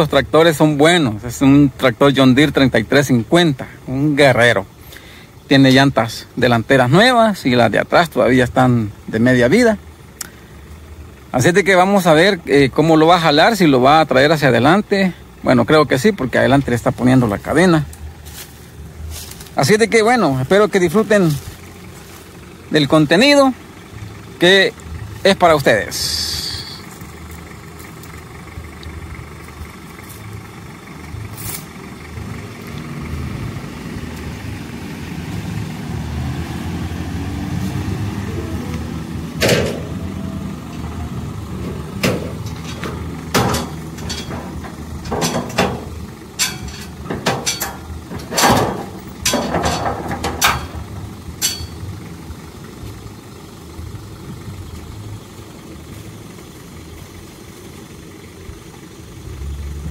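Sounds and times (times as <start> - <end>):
tractor and truck engines: 0.0 - 59.9
metal knocks and clanks: 39.4 - 51.9.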